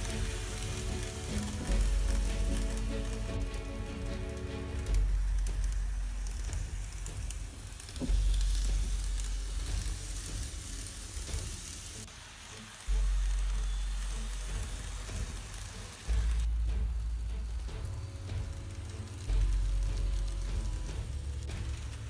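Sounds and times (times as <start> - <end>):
low rumble: 0.0 - 11.8, 12.9 - 22.0
model train wheels and motor rattling: 0.0 - 22.0.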